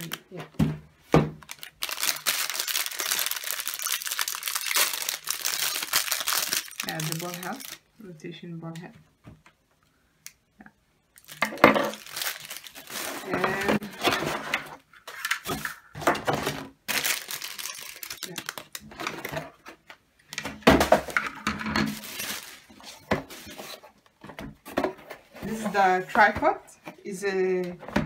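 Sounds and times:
plastic wrapping crinkling: 0.0s - 0.4s, 1.3s - 7.9s, 11.2s - 14.5s, 16.3s - 19.4s, 21.9s - 23.8s
cardboard rustling: 21.9s - 26.6s.

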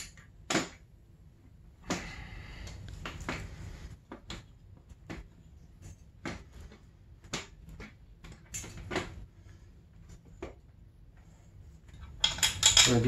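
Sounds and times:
metal parts knocking and clicking: 11.9s - 13.0s.

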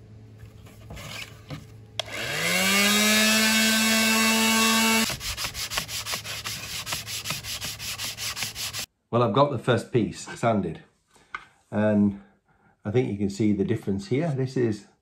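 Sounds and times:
electric sander switch click: 2.0s - 2.2s
electric sander motor whine: 2.0s - 5.1s
sanding block scrubbing plastic: 5.0s - 8.9s.

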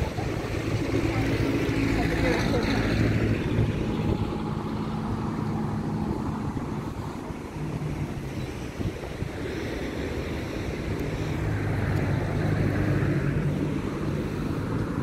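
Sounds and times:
vehicle engine running: 0.0s - 9.3s
street noise: 0.0s - 15.0s.

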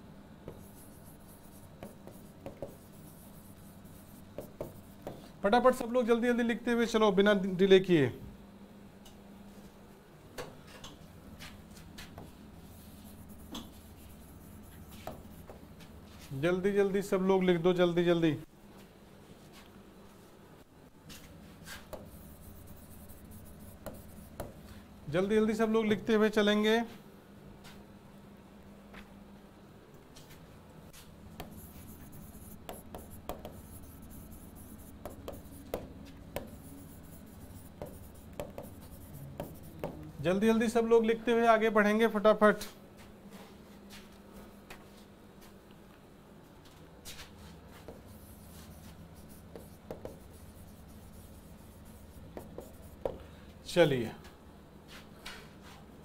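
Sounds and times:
faint low hum: 0.0s - 56.0s
chalk scratching on blackboard: 0.5s - 5.9s, 11.4s - 16.4s, 21.6s - 24.8s, 31.0s - 40.1s, 47.1s - 53.2s.

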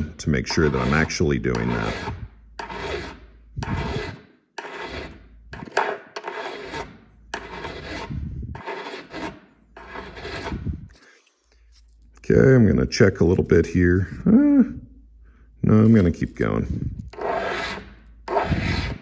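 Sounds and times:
hand file rasping on metal: 0.0s - 11.8s, 17.1s - 19.0s.

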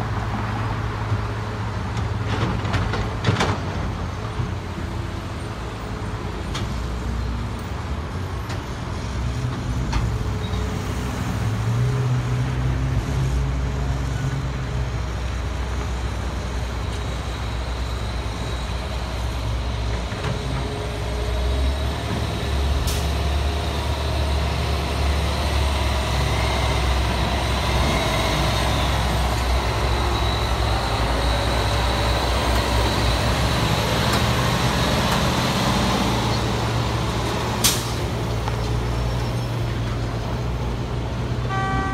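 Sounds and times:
dump truck engine rumble: 0.0s - 41.9s
excavator diesel engine: 0.0s - 41.9s.

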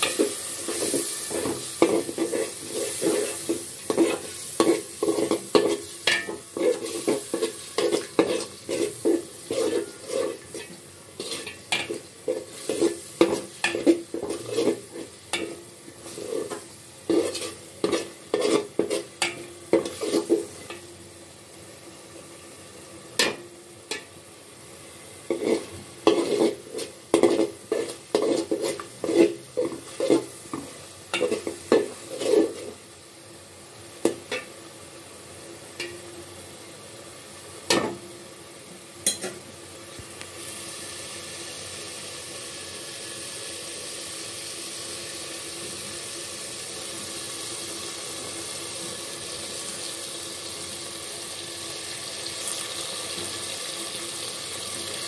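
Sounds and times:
spoon stirring in metal pot: 0.0s - 20.8s, 25.3s - 32.8s
steady sizzling: 0.0s - 55.0s.

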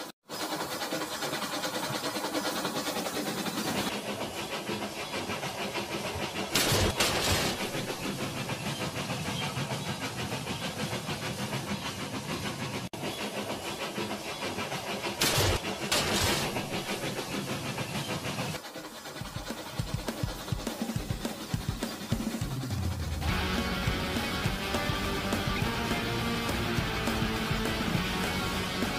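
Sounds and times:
toy train motors whirring: 0.0s - 22.9s
electronic steam engine chugging: 0.0s - 28.9s
steam hiss: 0.0s - 28.9s.

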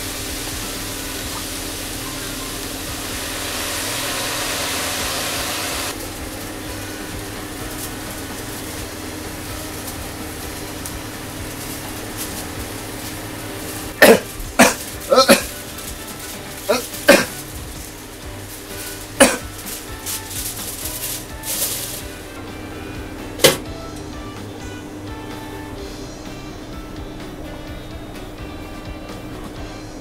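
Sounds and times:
steady hiss: 0.0s - 22.5s.

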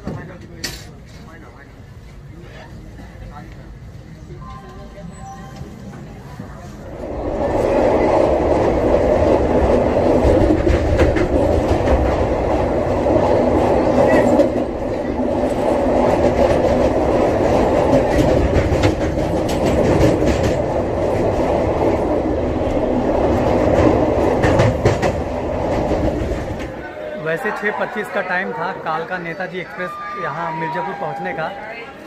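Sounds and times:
train rumbling along track: 0.0s - 27.0s
wheels clicking over rails: 7.5s - 26.8s.

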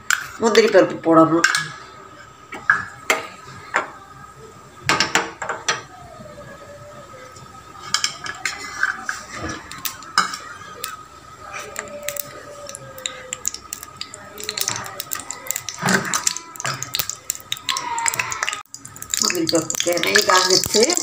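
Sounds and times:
metal kitchenware clinking: 7.8s - 11.0s.

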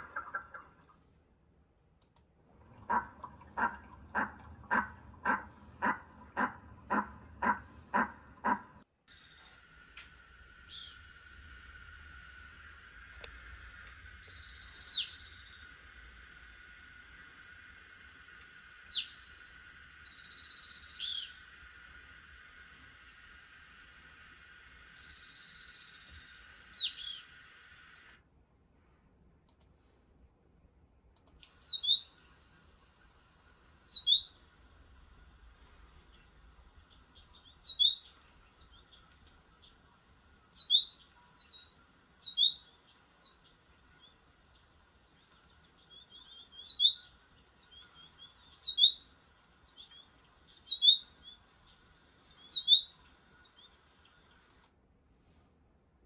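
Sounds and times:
hiss: 9.1s - 28.2s, 31.4s - 55.4s
bird chirping calls: 10.6s - 11.3s, 13.7s - 16.7s, 18.6s - 27.7s, 31.4s - 54.6s
bird call: 13.7s - 16.0s, 18.3s - 23.4s, 24.8s - 27.5s, 31.5s - 54.5s.

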